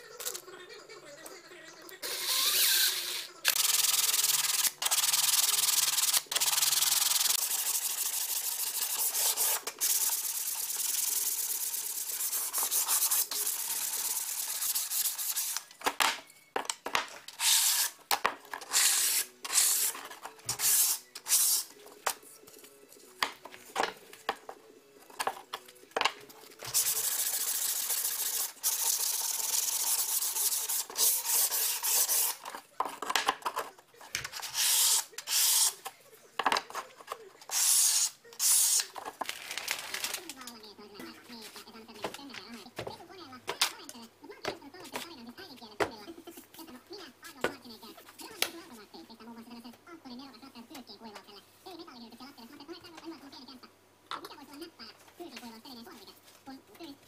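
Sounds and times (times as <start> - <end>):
sandpaper rubbing on wood: 3.6 - 15.6, 26.7 - 32.4.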